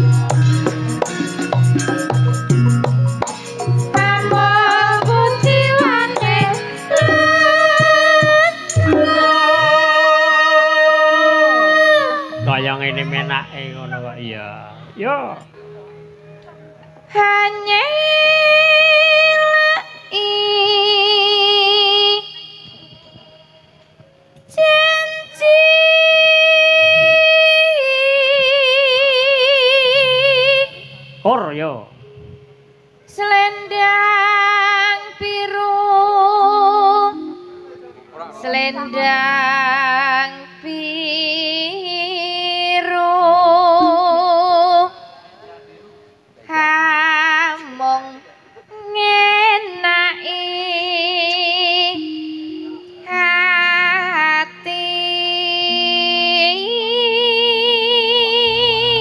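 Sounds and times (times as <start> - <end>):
woman singing long high note: 3.9 - 14.2, 24.5 - 31.3, 33.1 - 45.5, 46.4 - 59.0.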